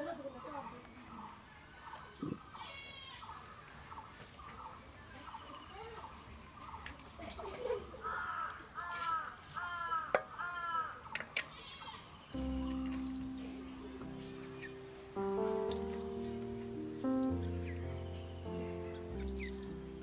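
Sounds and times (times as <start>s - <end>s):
bird calls: 0.0s - 20.0s
crow cawing: 8.0s - 12.0s.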